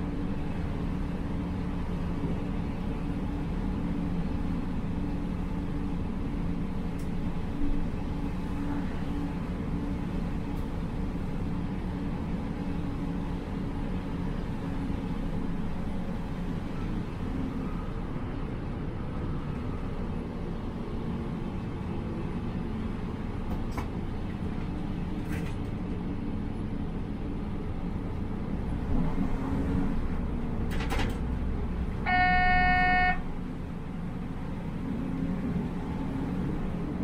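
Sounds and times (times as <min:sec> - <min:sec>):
train rumbling: 0:00.0 - 0:37.0
train horn blast: 0:32.0 - 0:33.3.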